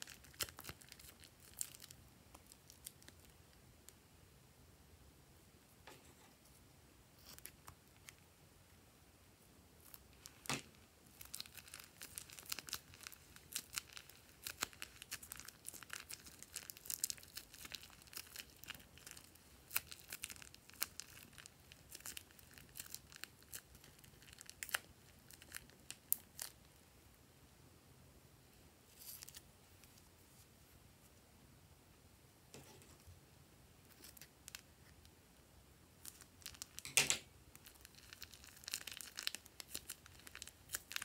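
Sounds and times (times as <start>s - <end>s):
plastic bag of foam beads crackling: 0.0s - 3.4s, 9.8s - 26.7s, 36.0s - 41.0s.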